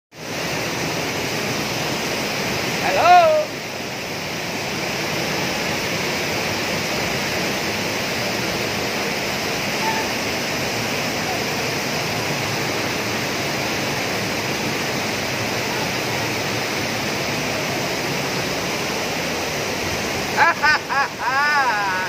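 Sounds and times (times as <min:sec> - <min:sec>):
waterfall rushing over boulders: 0:00.1 - 0:22.0.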